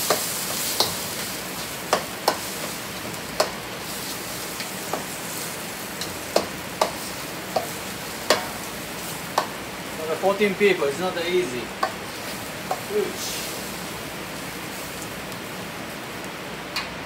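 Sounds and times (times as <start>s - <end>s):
meat and vegetables sizzling in wok: 0.0s - 17.0s
metal spatula clanking on wok: 6.0s - 8.6s.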